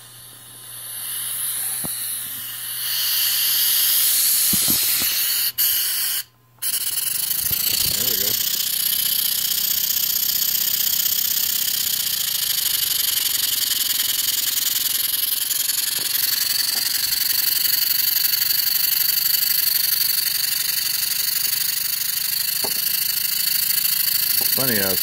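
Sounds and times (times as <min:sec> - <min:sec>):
steady high whine: 0:00.0 - 0:11.0, 0:11.7 - 0:25.0
model steam engine hissing: 0:00.0 - 0:25.0
light mechanical rattle: 0:06.6 - 0:25.0.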